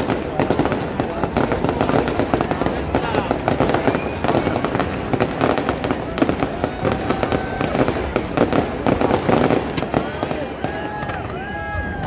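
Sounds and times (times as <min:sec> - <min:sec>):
fireworks bangs and crackles: 0:00.0 - 0:12.0.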